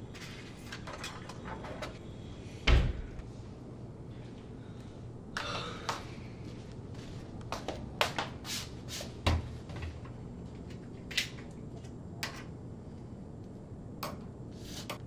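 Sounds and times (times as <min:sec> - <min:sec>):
faint low hum: 0:09.2 - 0:15.0.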